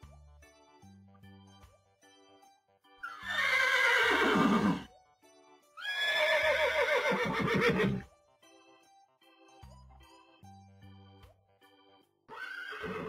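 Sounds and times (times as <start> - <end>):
quiet background music: 0.0 - 13.0
horse whinnying: 3.0 - 4.9, 5.8 - 8.0, 12.3 - 13.0.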